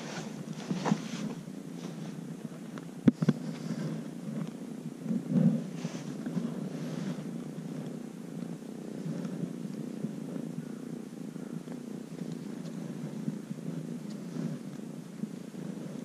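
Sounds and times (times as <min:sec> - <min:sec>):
kitten purring: 0:00.0 - 0:16.0.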